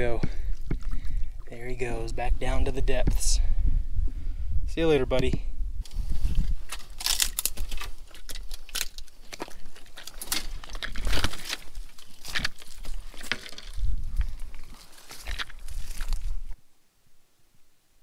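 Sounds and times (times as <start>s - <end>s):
twigs crackling and snapping: 5.8s - 16.6s.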